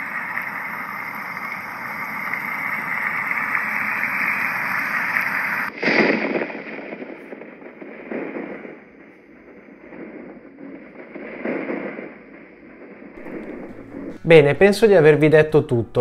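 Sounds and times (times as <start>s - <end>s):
white noise machine hiss: 0.0s - 5.7s, 10.0s - 16.0s
irregular surging sound: 12.1s - 15.4s.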